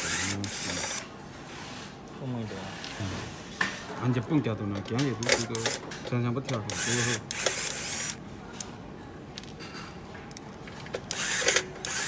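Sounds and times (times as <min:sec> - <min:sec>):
electric screwdriver whirring: 0:00.0 - 0:01.0, 0:06.6 - 0:08.2, 0:11.0 - 0:12.0.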